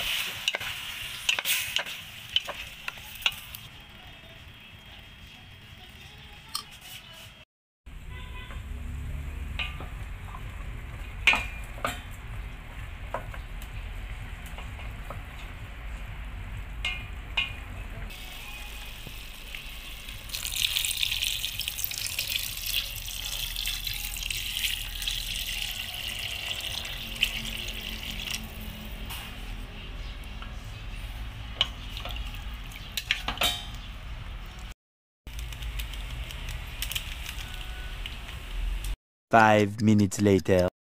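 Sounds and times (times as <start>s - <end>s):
water pouring into pot: 19.2s - 29.0s, 31.6s - 33.2s.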